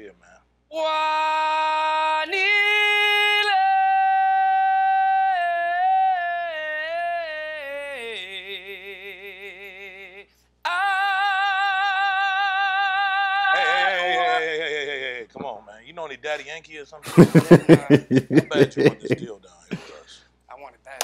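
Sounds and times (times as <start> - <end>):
man singing solo: 17.1 - 19.3.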